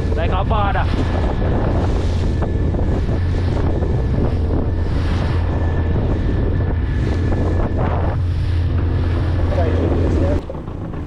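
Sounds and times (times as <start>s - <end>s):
boat motor droning: 0.0s - 11.0s
water splashing along hull: 0.0s - 11.0s
wind buffeting microphone: 0.0s - 11.0s.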